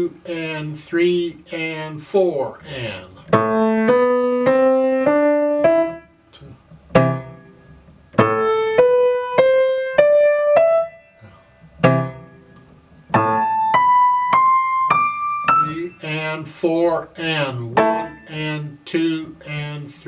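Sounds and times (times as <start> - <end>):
grand piano playing slowly: 3.2 - 16.6, 17.2 - 18.7.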